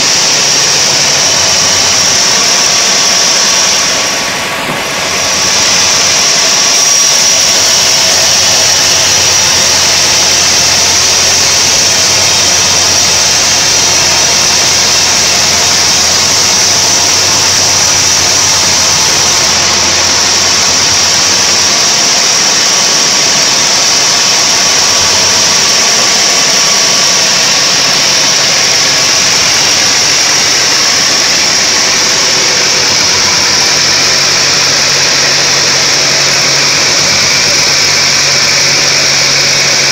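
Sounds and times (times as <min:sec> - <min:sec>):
band saw blade hissing: 0:00.0 - 0:39.9
low machine hum: 0:00.0 - 0:39.9.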